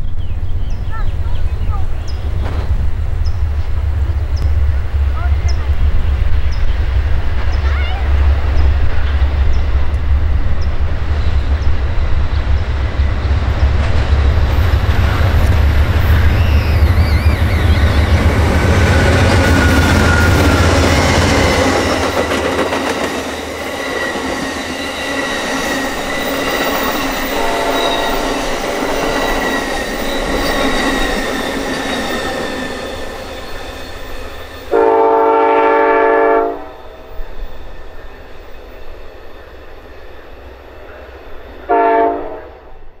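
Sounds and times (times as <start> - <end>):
train wheels on rails: 0.0 - 43.0
high wheel squeal: 15.9 - 35.1, 36.6 - 41.7
train horn: 27.0 - 29.5, 34.7 - 37.1, 41.6 - 42.9.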